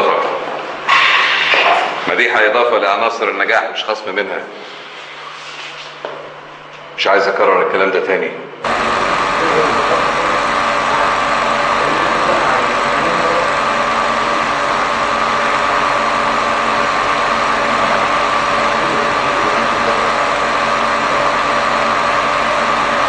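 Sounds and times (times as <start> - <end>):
small motor running: 8.6 - 23.0.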